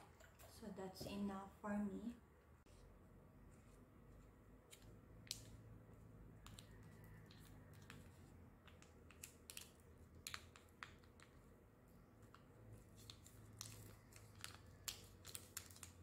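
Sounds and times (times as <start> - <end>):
plastic sachet crinkling: 13.0 - 16.0.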